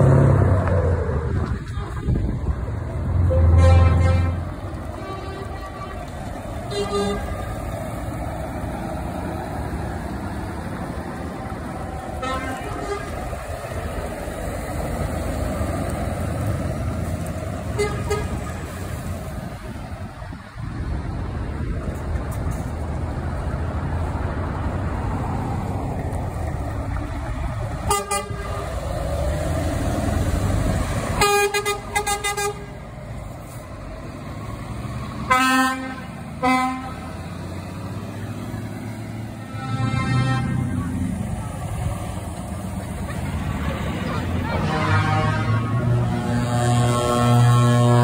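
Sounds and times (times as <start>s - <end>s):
diesel trucks driving past: 0.0s - 48.0s
truck horn blasts: 3.2s - 7.6s, 12.2s - 13.3s, 17.7s - 18.5s, 27.8s - 28.8s, 31.2s - 32.8s, 35.2s - 37.2s, 39.4s - 40.9s, 44.1s - 48.0s.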